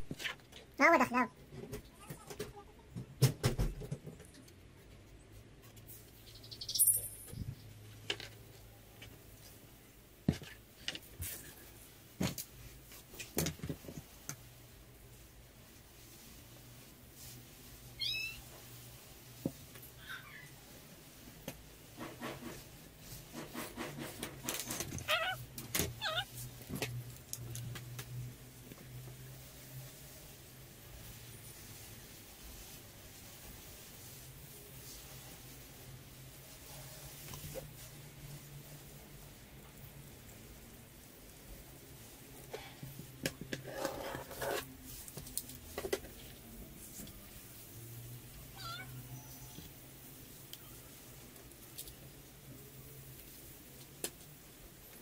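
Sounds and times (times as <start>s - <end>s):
cat meowing: 18.0s - 18.5s, 25.0s - 25.4s, 26.0s - 26.3s, 48.5s - 49.6s.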